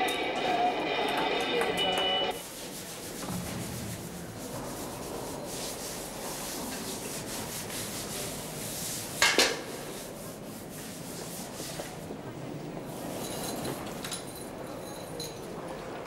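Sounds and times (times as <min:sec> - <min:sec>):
cloth scrubbing wet tiled floor: 0:02.4 - 0:12.1.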